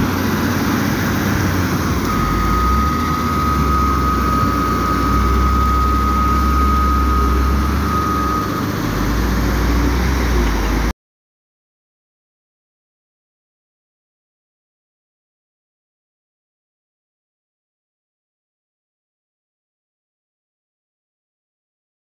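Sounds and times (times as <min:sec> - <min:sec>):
diesel engine rumbling under load: 0:00.0 - 0:10.9
steady high whine: 0:00.0 - 0:10.9.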